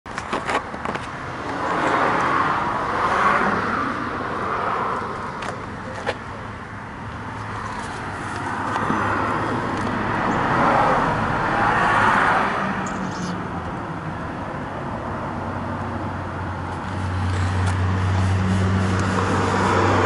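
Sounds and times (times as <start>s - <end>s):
vehicle passing by: 1.4s - 5.3s, 7.5s - 13.6s, 15.3s - 20.0s.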